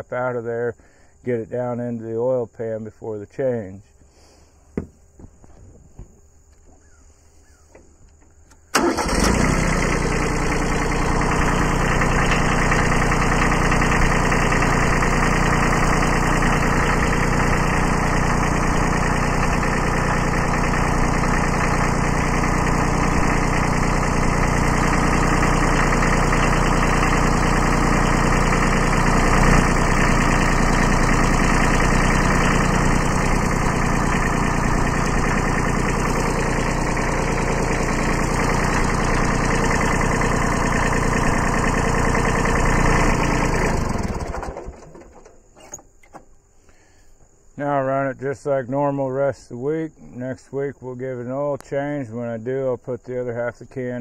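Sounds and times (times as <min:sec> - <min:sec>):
diesel engine running: 0:05.1 - 0:46.9.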